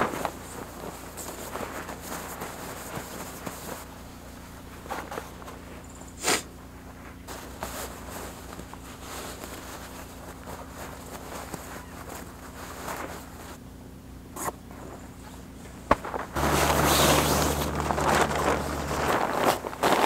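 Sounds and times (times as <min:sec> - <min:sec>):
nylon rustling and scraping: 0:00.0 - 0:06.0, 0:06.8 - 0:13.6, 0:14.4 - 0:20.0
sharp nylon swish: 0:15.9 - 0:20.0.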